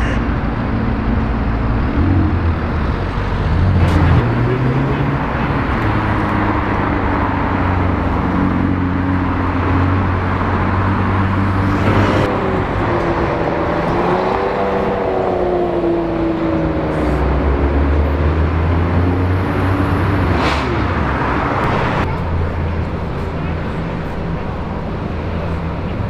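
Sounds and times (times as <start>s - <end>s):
sports car engines: 0.0s - 26.0s
car accelerating away: 1.7s - 22.2s.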